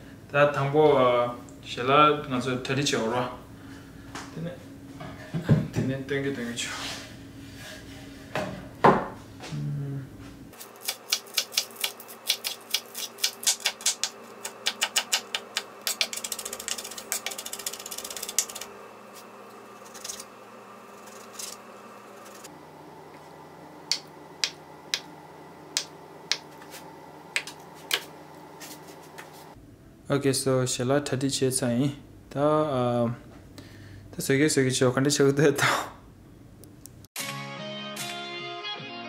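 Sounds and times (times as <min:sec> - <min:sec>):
knife chopping on wooden board: 0:10.6 - 0:16.2.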